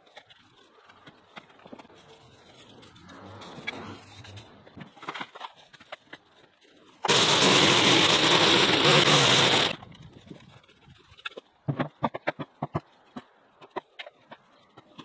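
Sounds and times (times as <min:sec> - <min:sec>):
rake scraping dirt: 0:01.9 - 0:05.7, 0:07.0 - 0:10.6
line trimmer cutting brush: 0:07.1 - 0:09.8.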